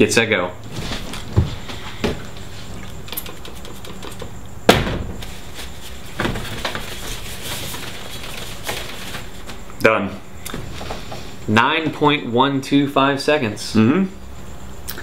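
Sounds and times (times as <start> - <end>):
objects knocking when set down: 6.2 - 7.0.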